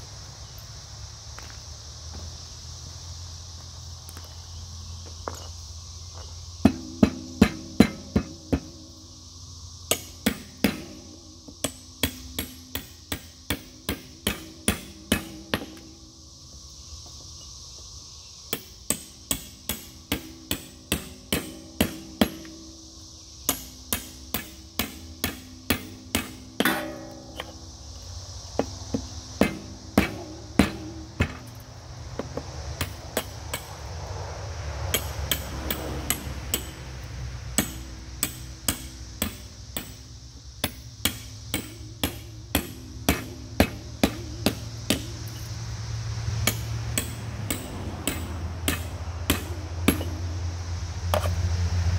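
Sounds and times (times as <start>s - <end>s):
hammer striking steel: 6.6s - 9.0s, 9.9s - 16.1s, 18.5s - 22.8s, 23.5s - 33.9s, 34.8s - 45.6s, 46.3s - 50.5s.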